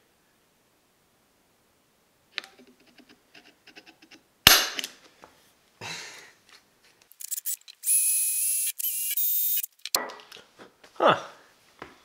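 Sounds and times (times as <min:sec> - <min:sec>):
center punch snapping on metal: 0:04.5 - 0:04.9
quick clicks: 0:07.1 - 0:10.0.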